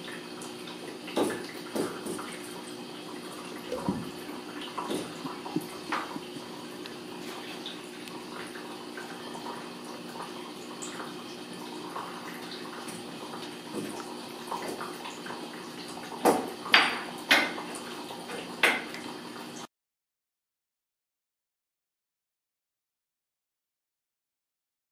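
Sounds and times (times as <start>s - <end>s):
steady low hum: 2.6s - 13.4s.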